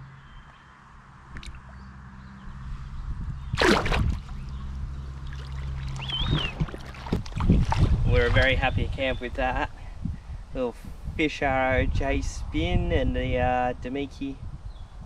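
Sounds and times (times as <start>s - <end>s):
river water splashing and trickling: 1.3s - 2.6s, 3.4s - 8.8s
high chirp: 5.9s - 6.6s.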